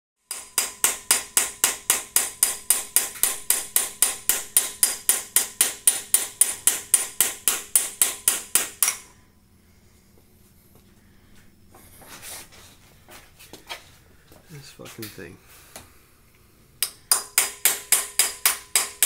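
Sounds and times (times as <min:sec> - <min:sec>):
hammer striking steel chisel: 0:00.3 - 0:09.2, 0:16.8 - 0:19.0.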